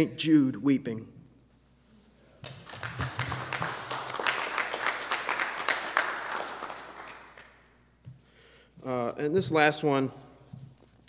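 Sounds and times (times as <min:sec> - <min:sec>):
audience applauding: 0:02.4 - 0:07.6.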